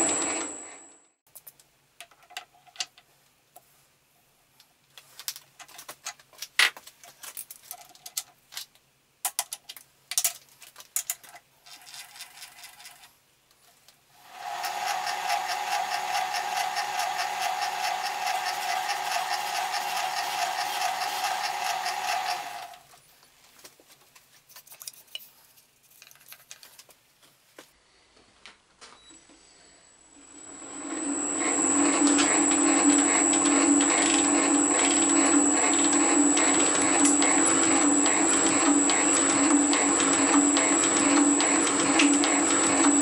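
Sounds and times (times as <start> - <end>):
metal shaping machine whining: 0.0 - 1.0, 14.2 - 22.8, 30.2 - 43.0.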